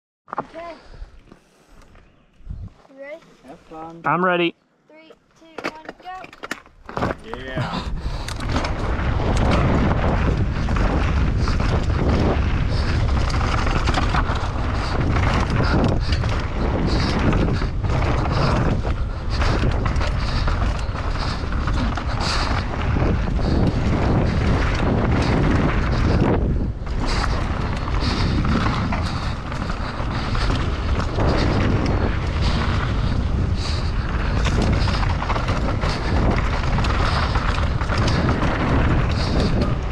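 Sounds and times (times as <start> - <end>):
wind rushing over microphone: 2.4 - 2.9, 7.2 - 39.9
bike knocking and rattling: 5.0 - 39.9
tyres rolling on dirt: 5.6 - 39.9.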